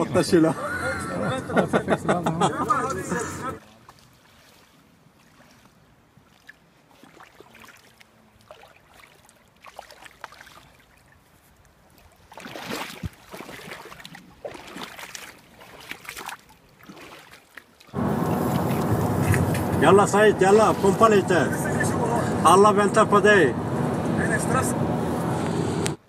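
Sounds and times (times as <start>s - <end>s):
river water lapping: 0.0s - 25.4s
fish splashing in water: 3.8s - 11.2s, 12.0s - 19.7s.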